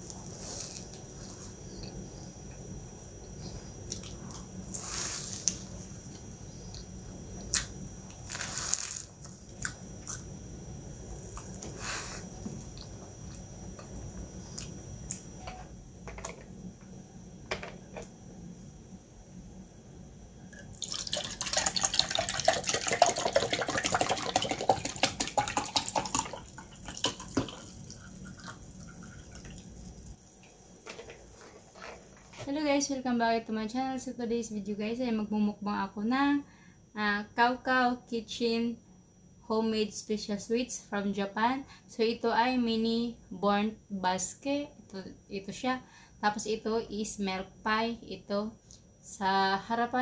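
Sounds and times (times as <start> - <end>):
juice pouring into a glass: 20.5 - 30.1.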